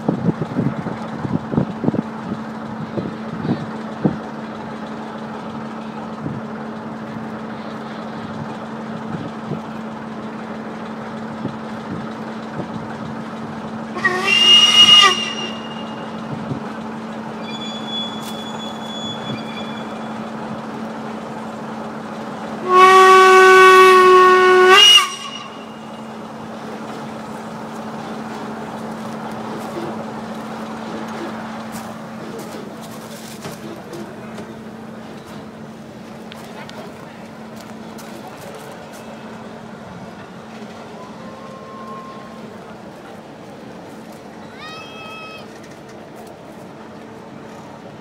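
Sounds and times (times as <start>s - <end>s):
steam whistle blasts: 14.0s - 16.2s, 22.6s - 25.9s.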